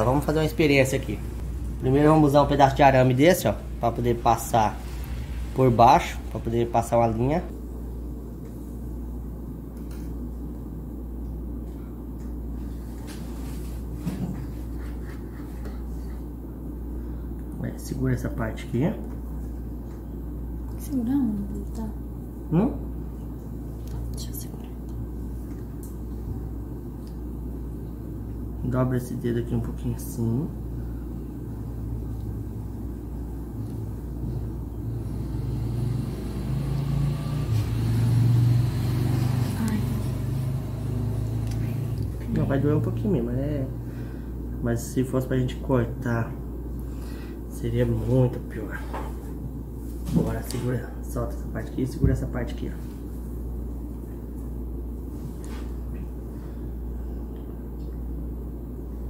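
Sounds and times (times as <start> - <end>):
low droning motor rumble: 0.0 - 9.4, 19.6 - 44.9
low room hum: 0.0 - 59.0.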